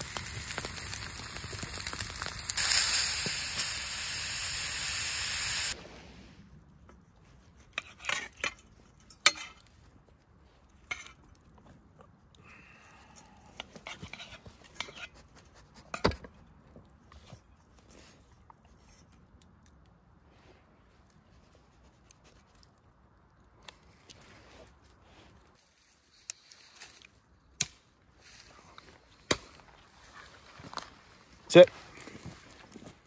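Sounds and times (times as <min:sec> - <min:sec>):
food sizzling in a pan: 0:00.0 - 0:05.8.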